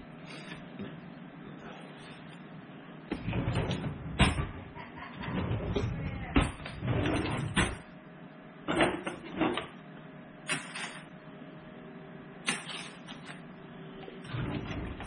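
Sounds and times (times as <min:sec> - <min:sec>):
drawer sliding open: 0:03.1 - 0:07.8, 0:14.2 - 0:15.0.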